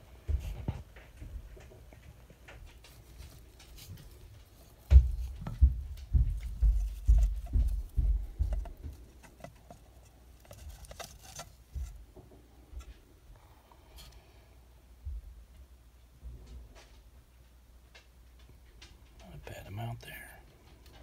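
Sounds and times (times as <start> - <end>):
low thumps and knocks: 0.0 - 13.0.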